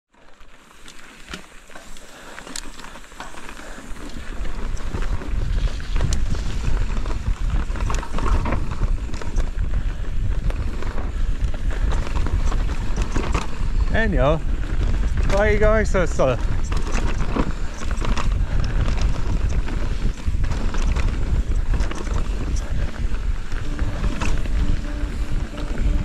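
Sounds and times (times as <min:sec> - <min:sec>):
bike clicks and rattles: 0:00.1 - 0:26.0
tyres rolling on dirt: 0:00.1 - 0:26.0
wind rumbling over microphone: 0:03.9 - 0:26.0.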